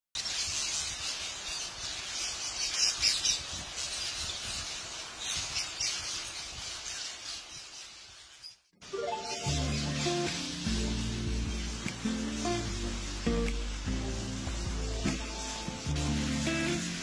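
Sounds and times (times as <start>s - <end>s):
flock of parakeets calling: 0.2s - 8.4s.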